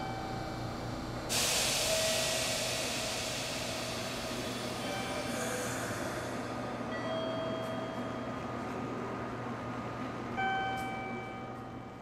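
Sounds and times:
train rushing past: 1.3 - 6.8.

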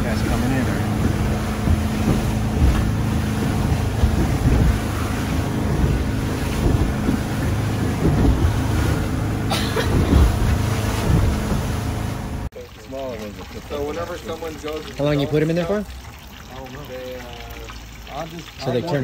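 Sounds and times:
motorboat engine drone: 0.0 - 12.5
wind buffeting microphone: 0.0 - 12.5
water rushing along hull: 0.0 - 19.0
thumps: 0.8 - 11.9.

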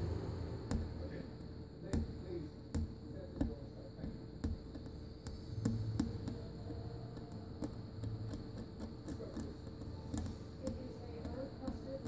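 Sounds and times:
faint hum: 0.0 - 12.0
repair tools tapping phone: 0.0 - 12.0.

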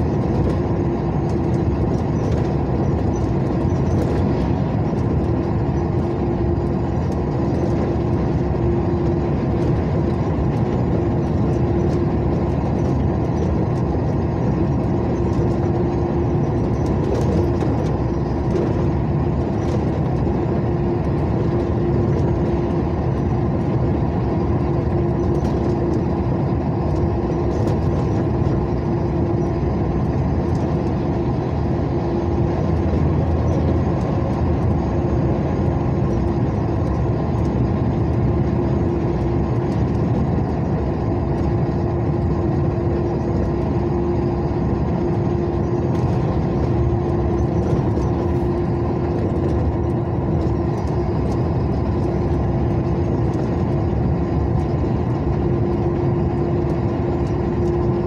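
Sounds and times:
constant hum: 0.0 - 58.0
vehicle engine and tyre noise: 0.0 - 58.0.

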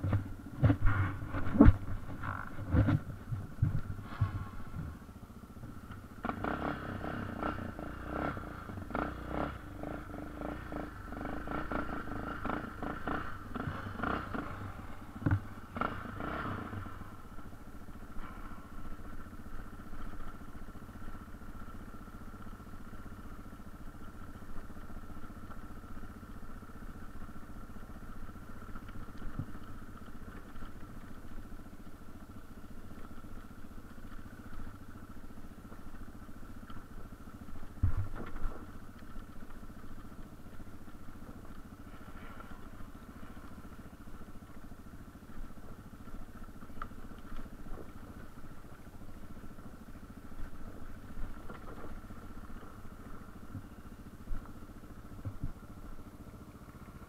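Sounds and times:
motorcycle engine running: 0.0 - 57.0
motorcycle rattles and knocks: 0.0 - 57.0.

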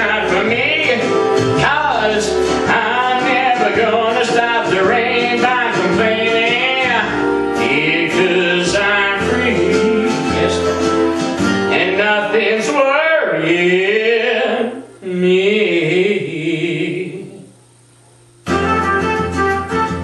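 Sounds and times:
plucked guitar music: 0.0 - 12.7, 18.4 - 20.0
man singing: 0.0 - 17.5.

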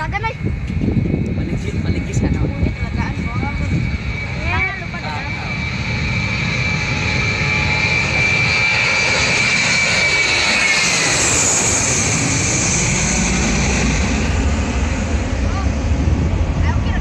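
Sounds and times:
jet engine whine: 0.0 - 17.0
low rumble: 0.0 - 17.0.

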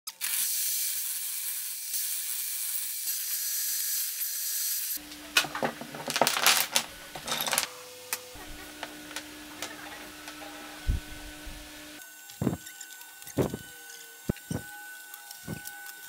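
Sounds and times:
table saw cutting wood: 0.4 - 16.0
wooden blocks clattering on workbench: 5.2 - 7.8, 8.4 - 10.4.

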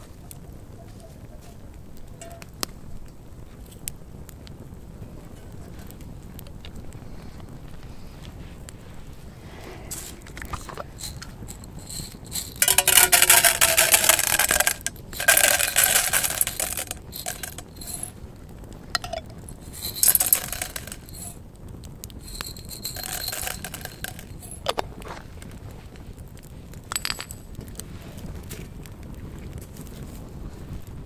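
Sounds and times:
metal utensils clinking and scraping: 9.9 - 18.1, 19.0 - 21.4, 22.2 - 24.7.

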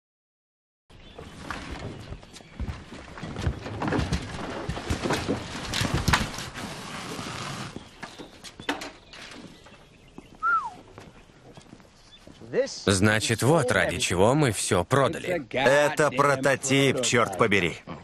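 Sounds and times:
wheels knocking on wooden ramp: 1.3 - 9.8
footsteps scuffing on road: 9.4 - 12.5.

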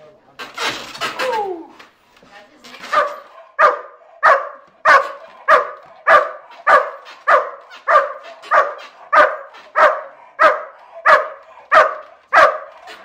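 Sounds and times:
dog barking: 2.8 - 13.0.

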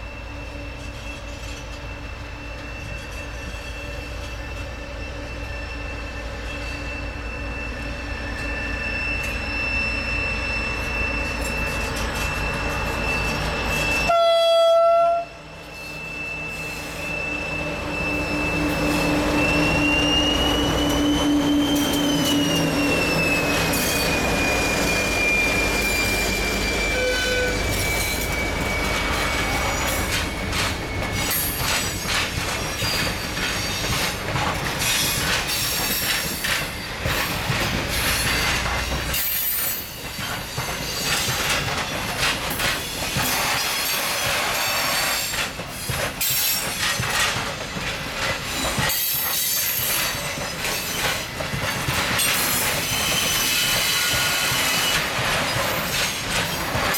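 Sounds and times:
high steady squeal: 0.0 - 14.2, 15.5 - 34.2
wheel flanges squealing: 0.0 - 14.2, 15.6 - 56.9
diesel locomotive engine: 0.0 - 56.9
train wheels clattering over rails: 18.6 - 56.9.

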